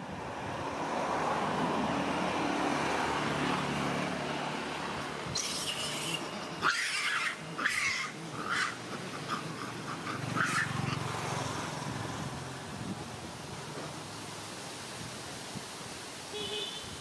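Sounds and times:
monkey short squeaks: 5.3s - 8.0s
young monkey shrill cries: 5.3s - 8.8s.

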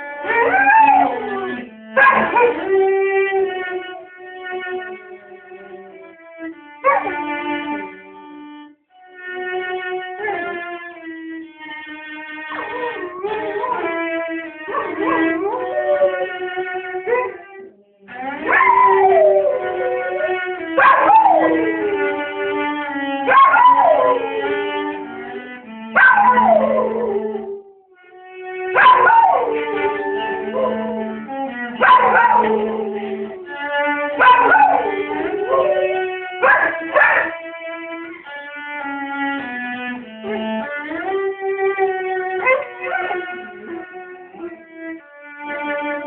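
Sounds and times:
cello playing low notes: 0.0s - 46.0s
dog howling: 0.2s - 2.9s, 6.8s - 7.2s, 12.5s - 27.8s, 28.7s - 37.4s, 42.4s - 44.6s.

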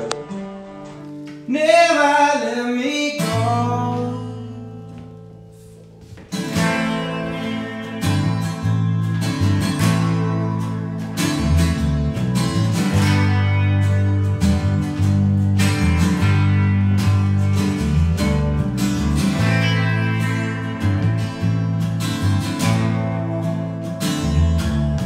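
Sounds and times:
bass guitar: 0.0s - 1.6s, 3.2s - 25.0s
electric guitar: 0.0s - 25.0s
strummed acoustic guitar: 0.0s - 25.0s
person singing: 1.5s - 5.0s.

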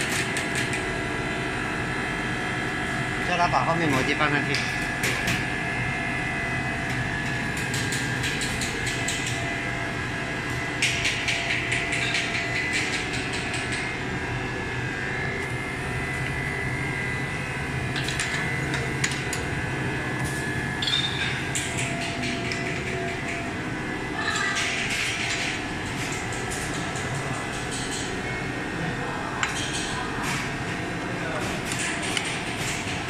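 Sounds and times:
machinery humming: 0.0s - 33.0s
conveyor clicking and rattling: 10.8s - 13.9s, 20.8s - 23.6s.

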